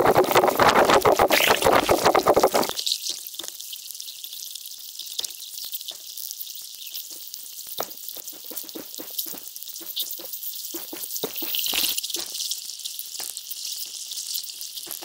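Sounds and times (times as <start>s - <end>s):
underwater crackling and clicks: 0.0s - 2.7s.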